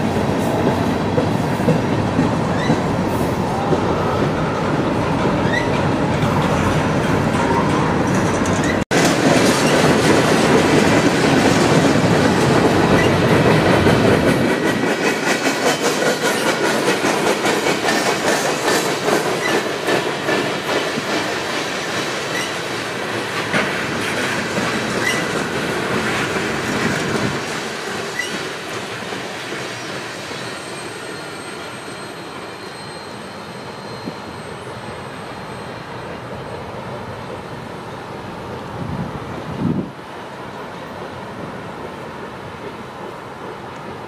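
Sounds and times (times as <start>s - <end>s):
heavy train rumble: 0.0s - 44.0s
freight train wheels clicking on joints: 0.3s - 4.3s, 5.0s - 35.1s
wheel squeal: 2.5s - 2.8s, 5.4s - 6.4s, 28.1s - 28.5s, 29.8s - 36.1s.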